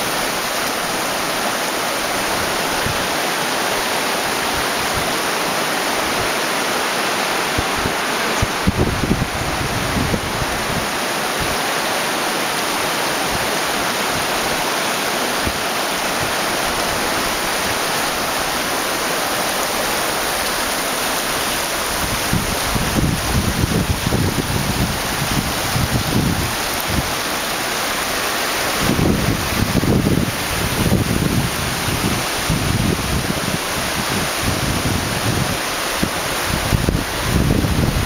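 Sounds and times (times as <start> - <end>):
water rushing over rocks: 0.0 - 38.0
wind buffeting microphone: 7.3 - 11.6, 21.2 - 27.5, 28.7 - 38.0.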